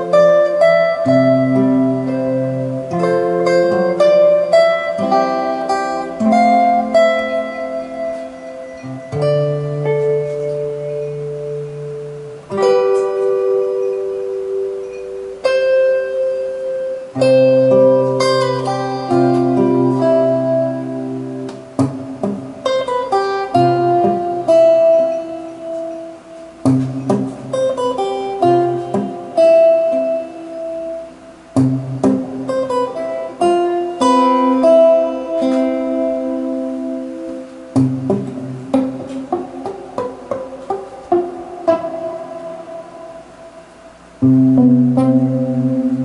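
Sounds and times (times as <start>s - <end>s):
fingerstyle acoustic guitar: 0.0s - 46.0s.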